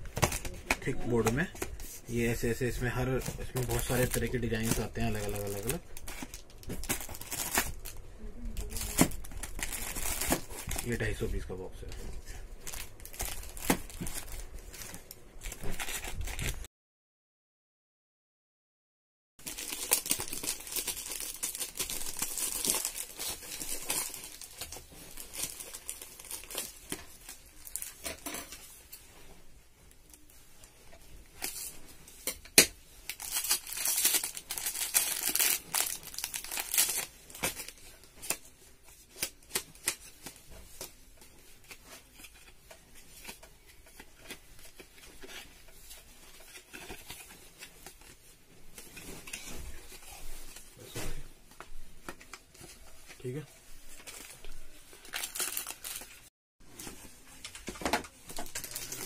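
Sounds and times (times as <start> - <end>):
cellophane crinkling and tearing: 2.2 - 8.0, 8.6 - 11.2, 12.6 - 16.7, 19.4 - 28.7, 33.0 - 51.0, 52.4 - 59.0.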